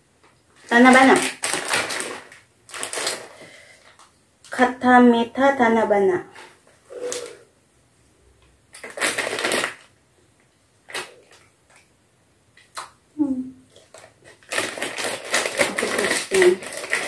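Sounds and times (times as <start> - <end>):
plastic snack packet crinkling: 0.6 - 4.1, 8.7 - 10.0, 13.8 - 17.0.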